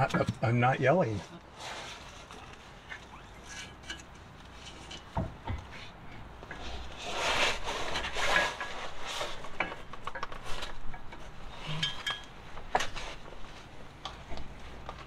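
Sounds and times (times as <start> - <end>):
pry bar scraping metal: 2.9 - 9.8.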